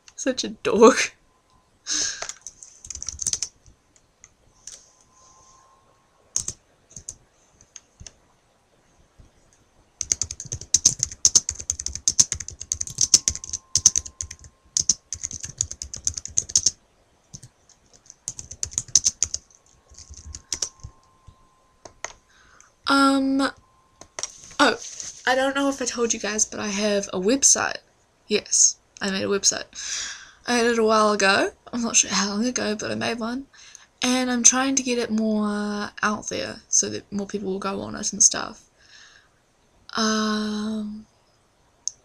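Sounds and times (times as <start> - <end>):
computer keyboard typing: 2.2 - 3.8, 6.4 - 8.1, 10.0 - 21.1, 21.8 - 22.2.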